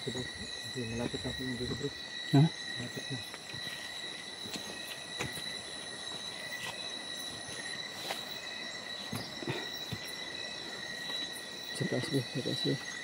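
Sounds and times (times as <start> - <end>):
crickets trilling: 0.0 - 13.0
footsteps rustling in undergrowth: 3.4 - 11.4.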